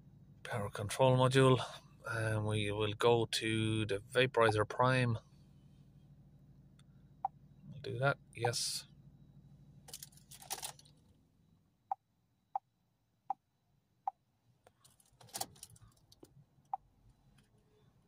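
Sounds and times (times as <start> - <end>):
diesel engine humming: 0.0 - 10.2
keys rattling: 9.9 - 11.0, 14.8 - 16.2.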